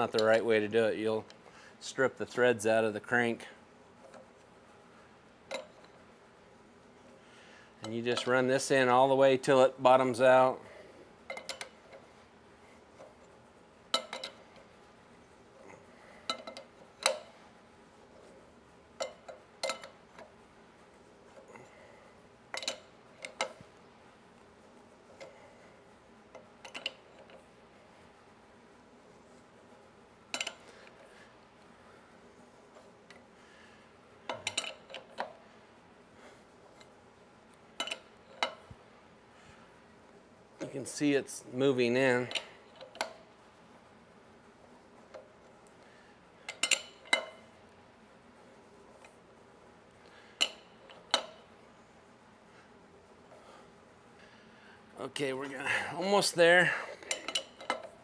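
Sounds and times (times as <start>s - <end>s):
steel wrenches clinking: 34.3s - 35.2s, 37.8s - 38.6s, 46.5s - 47.4s, 57.0s - 57.9s
wrenches clinking on metal tool: 57.1s - 57.9s.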